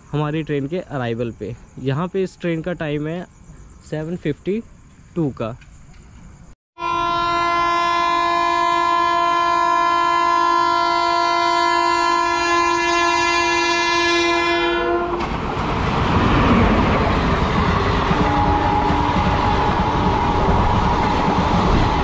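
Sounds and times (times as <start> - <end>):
train horn long blast: 6.8 - 15.3, 17.7 - 22.0
train rushing and rattling: 13.1 - 22.0.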